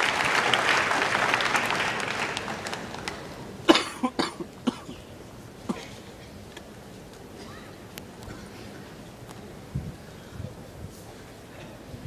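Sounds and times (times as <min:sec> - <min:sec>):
crowd applause: 0:00.0 - 0:03.6
spectators coughing: 0:03.6 - 0:06.4.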